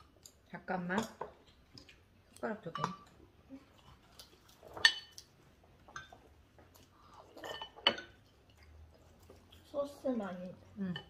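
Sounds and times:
spoon clinking against ceramic bowls: 0:02.6 - 0:03.1, 0:04.8 - 0:05.2, 0:07.4 - 0:08.2.

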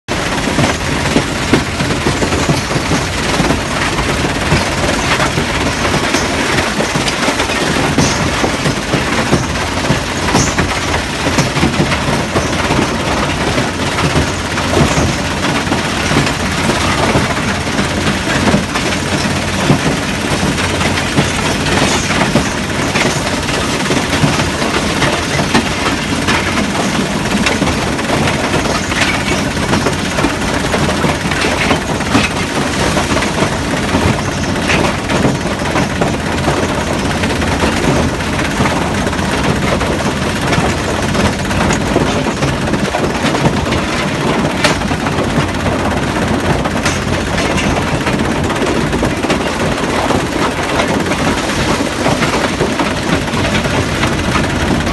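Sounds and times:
machine droning: 0:00.1 - 0:54.9
stones clattering on steel deck: 0:04.5 - 0:17.8.

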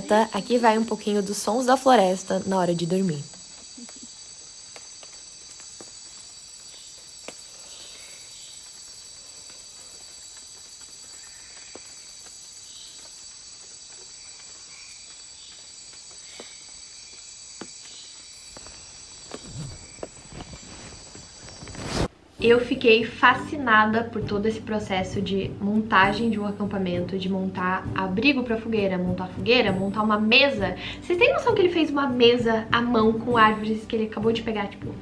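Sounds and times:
faint insect chirps: 0:00.0 - 0:22.5
insect chorus drone: 0:00.0 - 0:22.6
rustling: 0:02.2 - 0:22.2.

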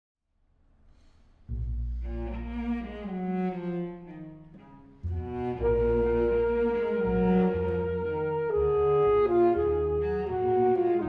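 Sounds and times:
faint hall room tone: 0:00.4 - 0:11.0
double bass and cello bowed note: 0:01.5 - 0:11.0.

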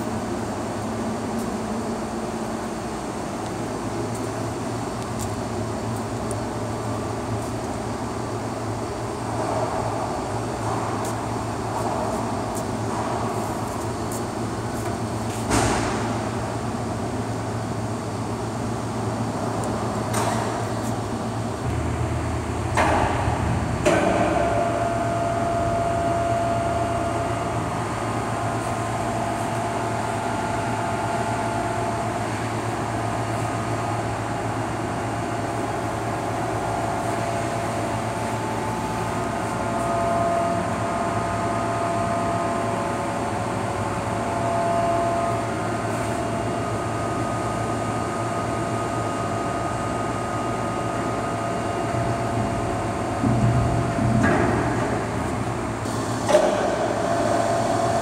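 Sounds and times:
heavy machinery drone: 0:00.0 - 0:58.0
machinery whine tones: 0:21.2 - 0:58.0.

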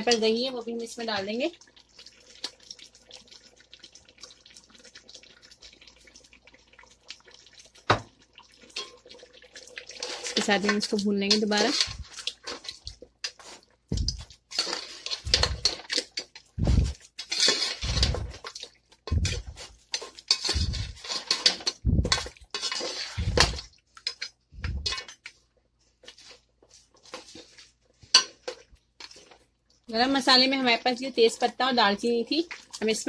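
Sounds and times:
meat frying: 0:00.0 - 0:25.5, 0:26.1 - 0:33.0
spoon scraping a cooking pot: 0:09.9 - 0:25.2, 0:27.1 - 0:29.4.

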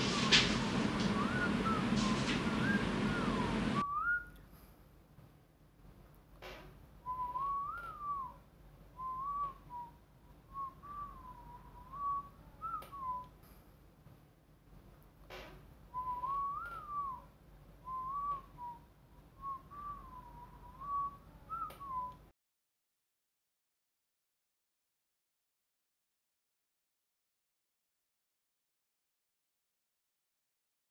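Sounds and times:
room noise hiss: 0:00.0 - 0:22.3
person whistling a tune: 0:01.0 - 0:04.4, 0:07.0 - 0:08.4, 0:09.0 - 0:13.3, 0:15.9 - 0:18.8, 0:19.4 - 0:22.2.

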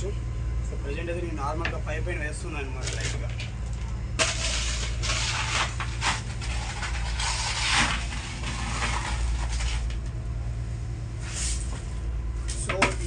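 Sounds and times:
crushed ice scraping and rattling: 0:04.2 - 0:10.0.

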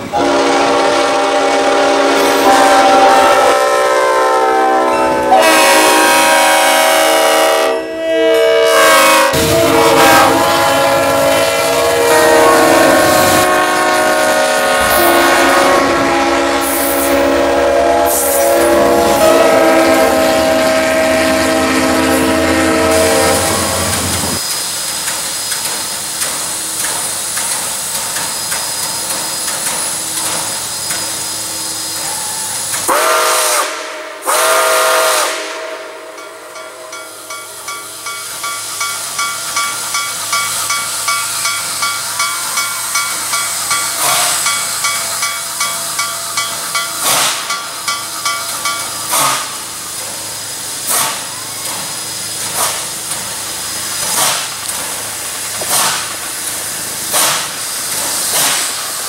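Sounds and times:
steam locomotive whistle: 0:00.0 - 0:24.4, 0:29.4 - 0:38.2, 0:41.8 - 0:46.1
locomotive air horn blasts: 0:00.1 - 0:24.4, 0:31.6 - 0:37.2.

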